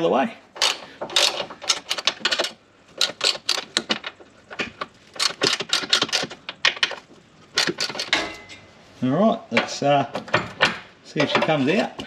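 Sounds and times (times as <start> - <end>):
ratchet spanner clicking: 0.6 - 4.2.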